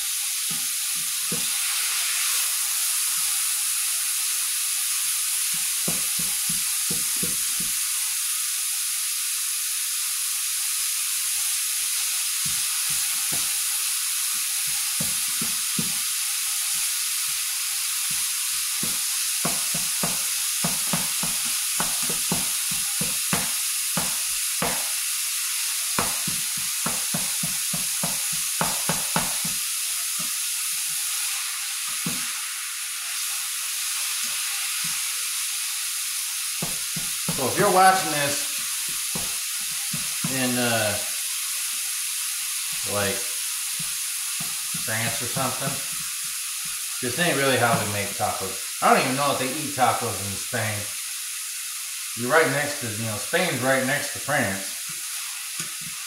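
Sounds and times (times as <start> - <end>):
meat sizzling in a frying pan: 0.0 - 56.0
spatula tapping and scraping pan: 0.4 - 1.6, 5.5 - 7.8, 14.7 - 16.0, 18.8 - 25.0, 26.0 - 31.0, 36.6 - 40.4.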